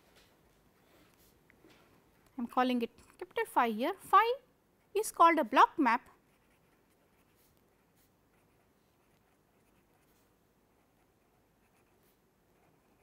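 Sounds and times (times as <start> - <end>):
pen scratching on paper: 6.2 - 13.0.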